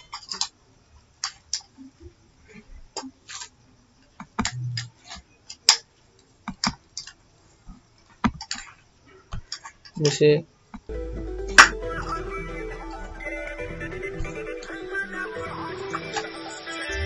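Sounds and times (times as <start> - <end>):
brief low hum: 10.9 - 16.2.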